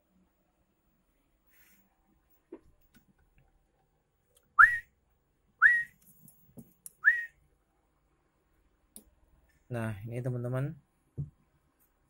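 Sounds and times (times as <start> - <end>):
person whistling rising notes: 4.6 - 4.9, 5.6 - 5.9, 7.0 - 7.4.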